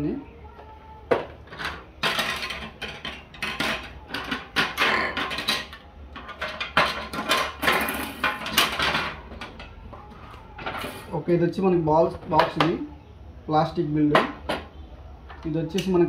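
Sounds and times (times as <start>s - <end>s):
hard plastic parts clattering: 1.1s - 11.2s.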